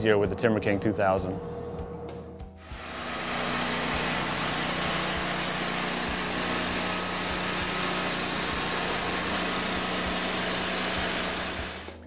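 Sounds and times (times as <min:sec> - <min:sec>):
band sawmill running: 0:02.6 - 0:12.0.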